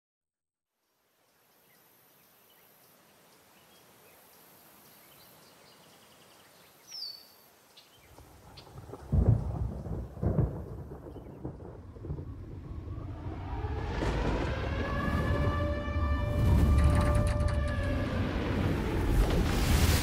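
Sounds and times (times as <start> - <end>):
thunder rumbling: 8.4 - 20.0.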